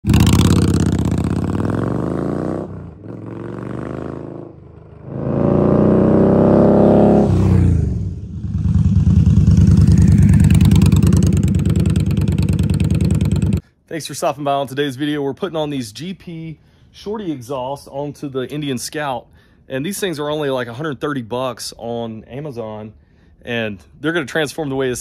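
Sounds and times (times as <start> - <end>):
motorcycle engine accelerating: 0.0 - 13.6.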